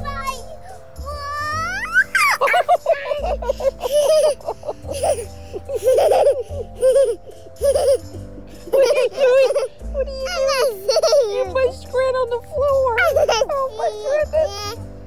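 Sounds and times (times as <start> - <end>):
girl giggling: 1.9 - 9.7, 10.3 - 11.6, 13.0 - 14.8.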